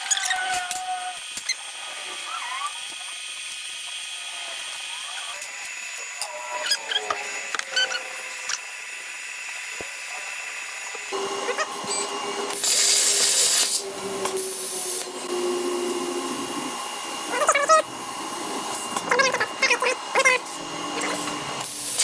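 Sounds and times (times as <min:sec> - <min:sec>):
stepper motors whining: 0:00.0 - 0:22.0
steady hum: 0:04.2 - 0:22.0
loud hissing air: 0:12.4 - 0:17.3.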